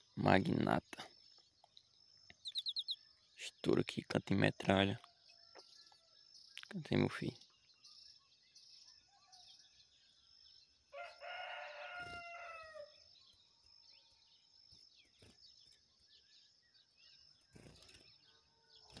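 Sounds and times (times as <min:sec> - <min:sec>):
faint bird chirps: 0:00.0 - 0:19.0
rooster crowing: 0:10.9 - 0:13.0.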